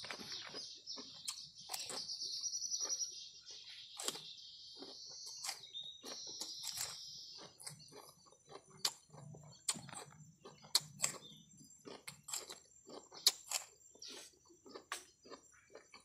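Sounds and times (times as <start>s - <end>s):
birds and insects chirring: 0.0s - 16.0s
man chewing food: 0.0s - 16.0s.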